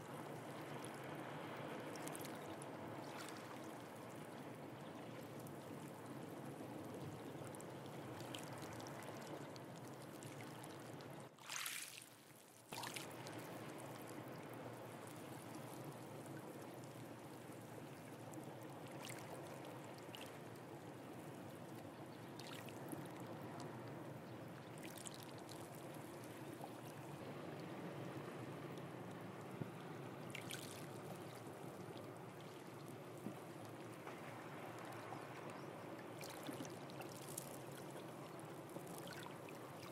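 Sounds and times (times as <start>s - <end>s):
faint short splashes: 11.4s - 12.1s.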